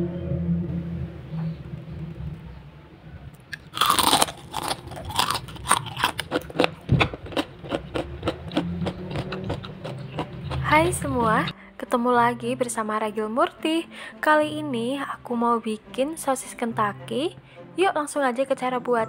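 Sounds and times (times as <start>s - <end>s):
crunchy chewing: 3.5s - 11.5s
crunchy bite into fried food: 3.6s - 10.7s.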